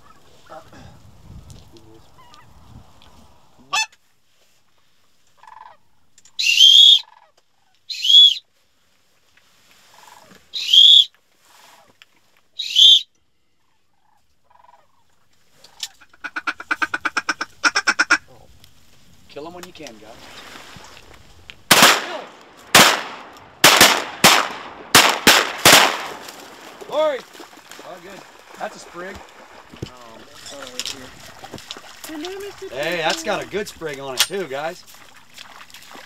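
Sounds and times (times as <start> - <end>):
goose calls: 3.7 - 4.0, 6.4 - 7.3, 7.9 - 8.4, 9.9 - 11.9, 12.6 - 13.0, 15.7 - 18.3
clucking bird call notes: 5.4 - 8.4, 9.9 - 11.1, 12.6 - 13.1.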